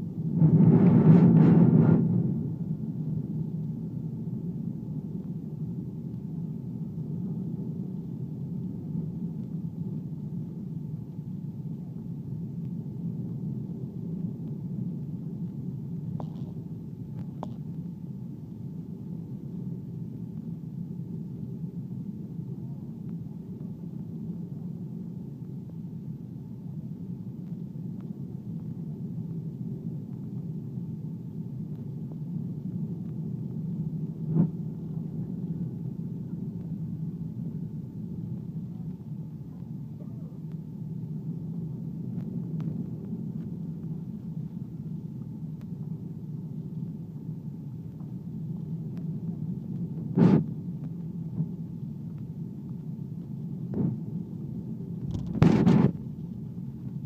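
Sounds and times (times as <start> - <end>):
airliner engines rumbling in cabin: 0.0 - 57.0.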